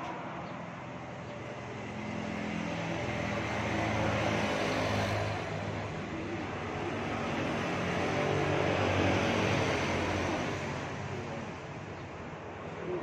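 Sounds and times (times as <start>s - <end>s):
vehicle engine passing by: 1.7s - 11.6s.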